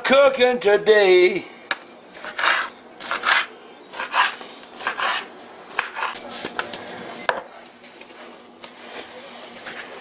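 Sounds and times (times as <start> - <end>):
knife cutting on cutting board: 2.2 - 6.2.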